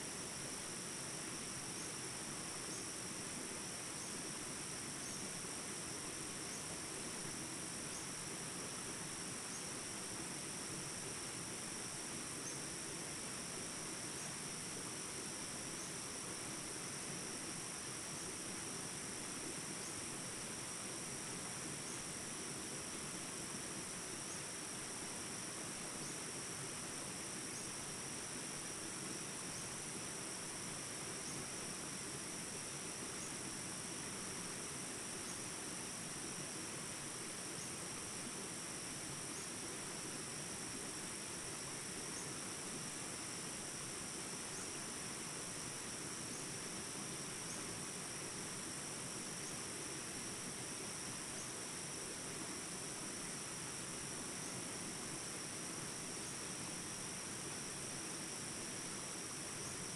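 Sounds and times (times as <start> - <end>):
insect chorus: 0.0 - 59.9.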